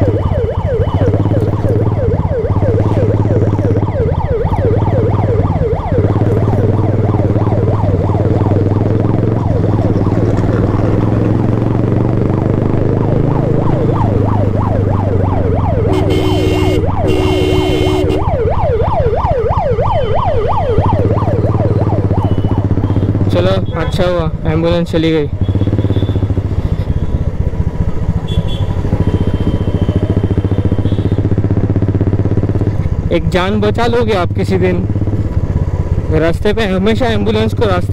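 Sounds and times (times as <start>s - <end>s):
ambulance siren yelping: 0.0s - 11.7s, 12.5s - 24.4s
motorcycle engine hum: 0.0s - 37.9s
vehicle horn blasts: 15.9s - 18.2s, 22.3s - 24.2s, 28.3s - 31.2s.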